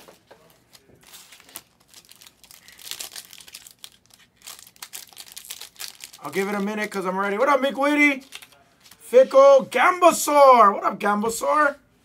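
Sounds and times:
foil wrapper crinkling: 0:00.4 - 0:09.1.

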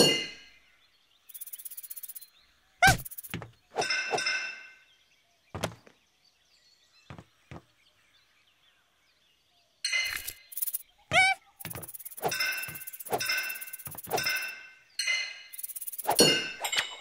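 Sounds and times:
cartoon thunks and knocks: 0:02.8 - 0:03.6, 0:05.6 - 0:06.0, 0:07.1 - 0:07.7.

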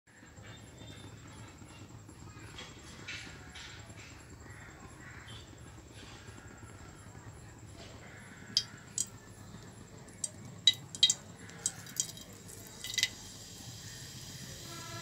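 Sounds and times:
kitchen utensils clinking: 0:10.7 - 0:13.2.

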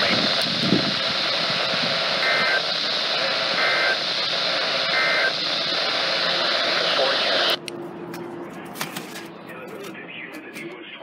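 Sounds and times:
radio static hiss: 0:00.0 - 0:07.6
two-tone data bursts: 0:01.3 - 0:07.6.

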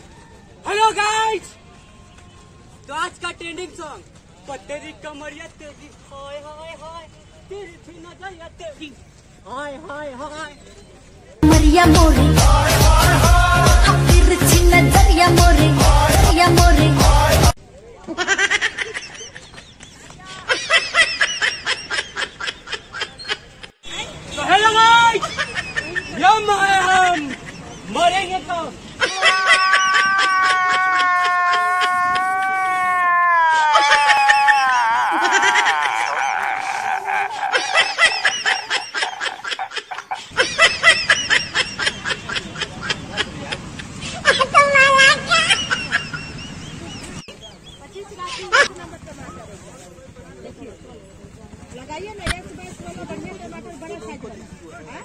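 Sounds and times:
person laughing: 0:29.0 - 0:46.4.

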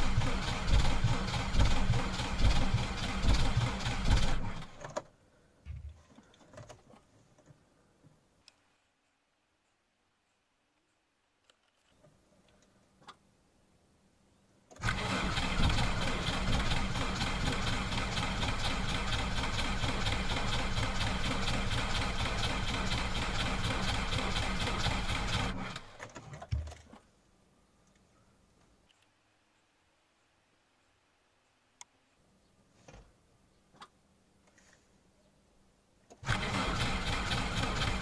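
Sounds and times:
starter motor cranking diesel engine: 0:00.0 - 0:05.0, 0:14.8 - 0:26.2, 0:36.1 - 0:38.0
faint clicks: 0:10.8 - 0:13.2, 0:27.8 - 0:29.1.

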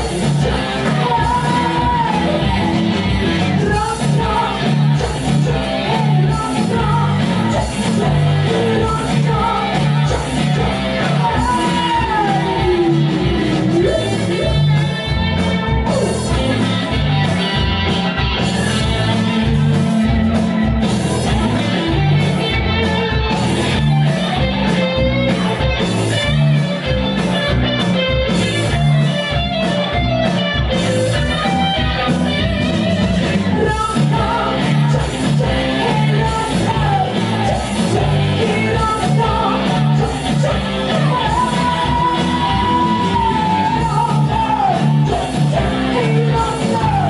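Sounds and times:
rock band playing live: 0:00.0 - 0:47.0
woman singing: 0:00.3 - 0:02.8, 0:03.6 - 0:14.5, 0:33.5 - 0:47.0.

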